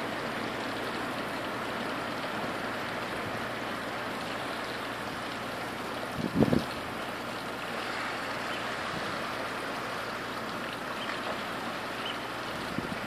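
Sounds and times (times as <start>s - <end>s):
heavy rain: 0.0s - 13.0s
wind: 0.0s - 13.0s
wind gust buffeting microphone: 6.2s - 6.7s.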